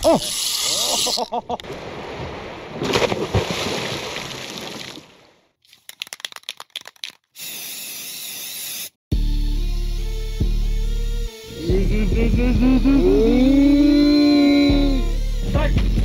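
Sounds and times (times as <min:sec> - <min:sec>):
music: 0:09.1 - 0:16.0.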